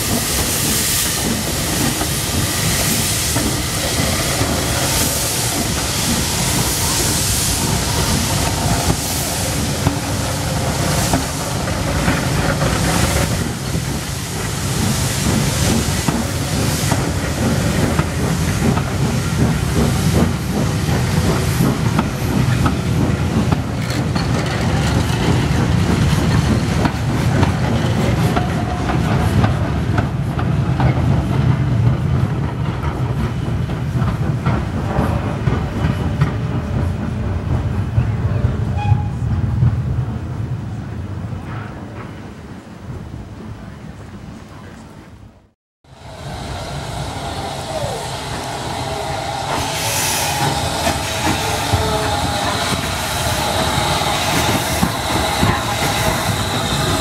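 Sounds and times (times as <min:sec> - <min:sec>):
steam locomotive hissing: 0:00.0 - 0:39.4, 0:45.9 - 0:57.0
coaches rumbling and clattering: 0:00.0 - 0:45.1.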